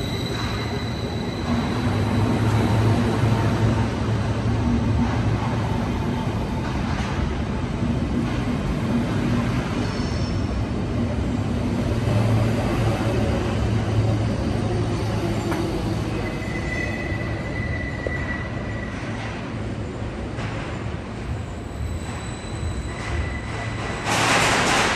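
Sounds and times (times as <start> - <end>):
high wheel squeal: 0.0 - 2.8, 14.1 - 19.2, 21.6 - 24.1
train wheels rumbling: 0.0 - 24.9.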